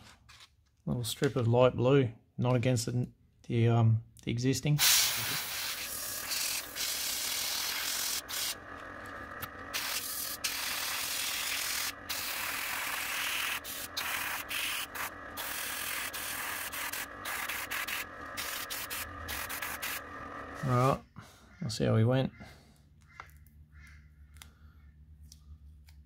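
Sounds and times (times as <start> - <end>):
airbrush spraying hiss: 4.8 - 20.9.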